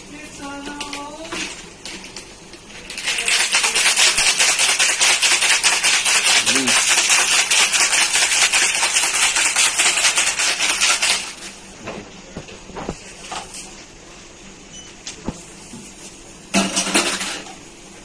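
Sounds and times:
ice rattling in drink shaker: 0:00.8 - 0:11.5
drink pouring: 0:02.9 - 0:11.5
shaker knocks and clicks: 0:02.9 - 0:13.7.

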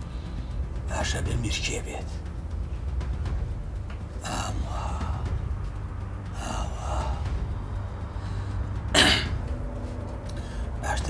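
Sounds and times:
man breathing: 0:00.0 - 0:00.8, 0:04.2 - 0:08.9, 0:09.6 - 0:10.8
steady low hum: 0:00.0 - 0:11.0.

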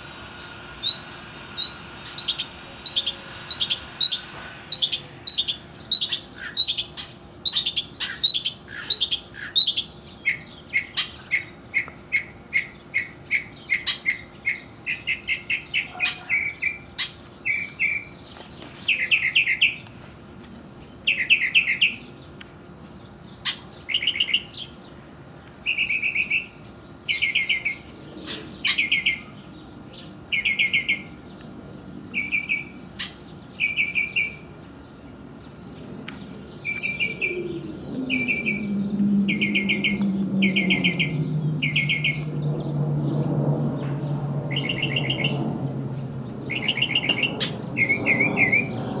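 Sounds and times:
low engine hum: 0:00.0 - 0:07.4, 0:34.6 - 0:49.0
songbird trilling: 0:00.0 - 0:19.8, 0:32.2 - 0:42.5, 0:46.4 - 0:49.0.

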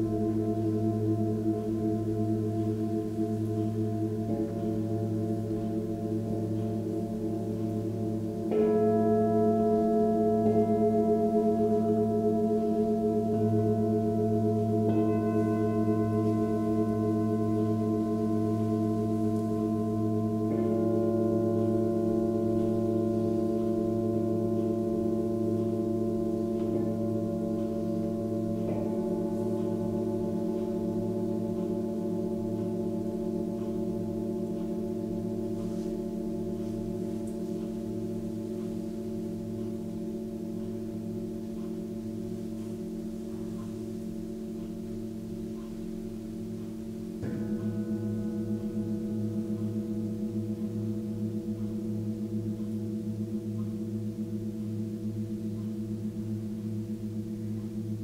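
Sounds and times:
singing bowl struck: 0:00.0 - 0:44.7, 0:47.0 - 0:52.7
singing bowls ringing: 0:00.0 - 0:58.0.

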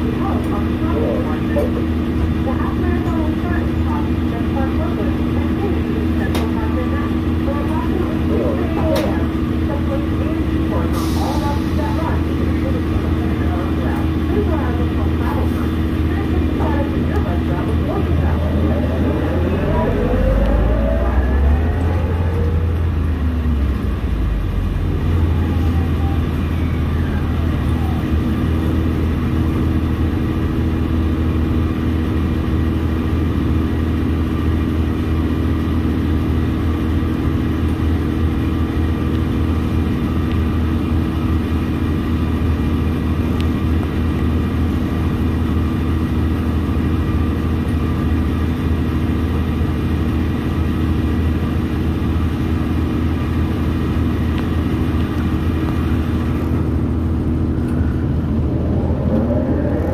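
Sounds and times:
bus engine idling: 0:00.0 - 0:59.9
bus whine falling in pitch: 0:17.7 - 0:27.6, 0:56.6 - 0:59.9.

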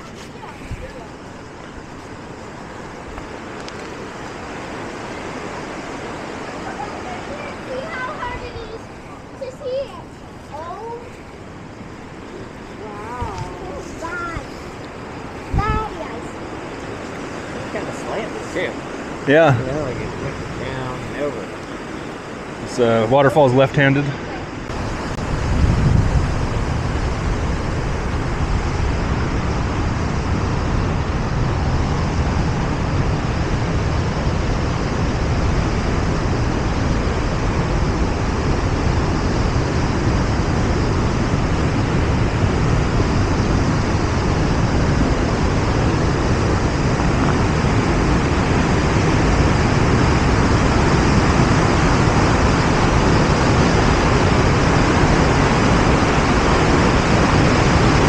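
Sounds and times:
waterfall rushing: 0:00.0 - 0:58.0.

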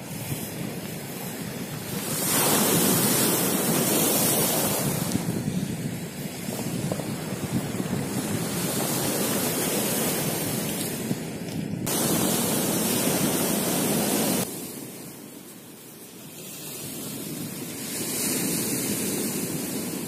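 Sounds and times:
wind buffeting microphone: 0:00.0 - 0:15.8
surf on pebble beach: 0:00.0 - 0:20.0.

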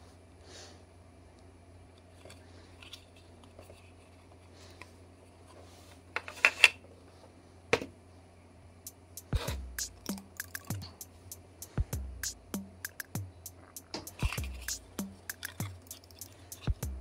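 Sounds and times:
plastic parts scratching and ticking: 0:10.0 - 0:11.0, 0:12.9 - 0:16.8.

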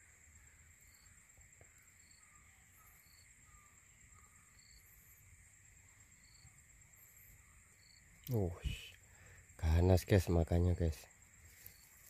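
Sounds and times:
faint bird chirps: 0:00.0 - 0:12.0
high insect drone: 0:00.0 - 0:12.0.

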